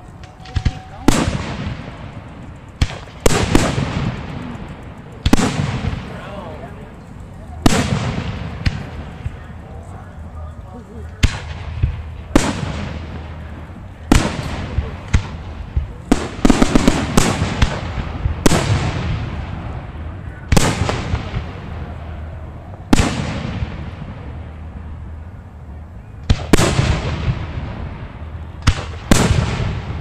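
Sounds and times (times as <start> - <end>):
crackling firework reports: 0.0 - 30.0
firework shells bursting with bangs: 0.1 - 6.6, 7.6 - 9.6, 11.2 - 19.8, 22.9 - 24.4, 26.2 - 30.0.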